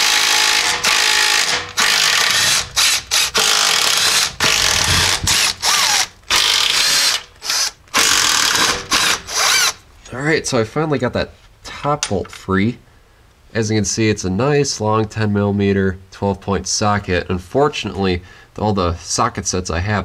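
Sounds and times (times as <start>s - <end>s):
impact tool hammering: 0.0s - 7.3s, 7.9s - 9.7s.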